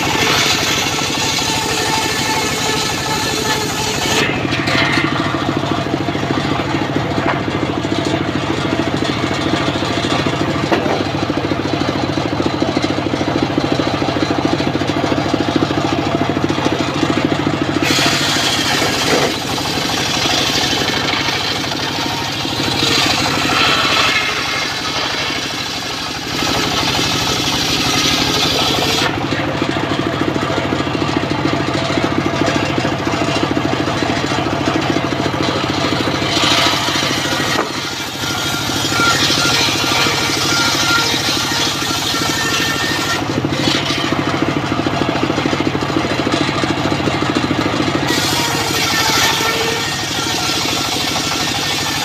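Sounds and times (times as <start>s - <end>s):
saw blade ripping through timber: 0.0s - 13.4s, 17.5s - 29.8s, 32.5s - 46.8s, 47.4s - 52.0s
saw bench engine running: 0.0s - 52.0s.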